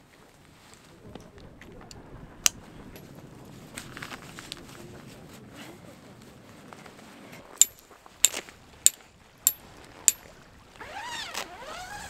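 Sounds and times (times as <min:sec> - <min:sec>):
metal stake clinking: 0:07.6 - 0:10.2.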